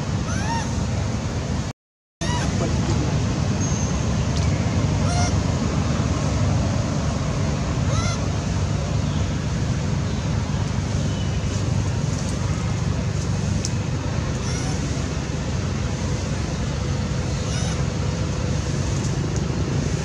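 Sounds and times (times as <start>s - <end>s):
steady low rumble: 0.0s - 20.0s
monkeys squeaky calls: 0.2s - 0.8s, 2.2s - 2.6s, 14.4s - 15.1s, 17.3s - 17.9s.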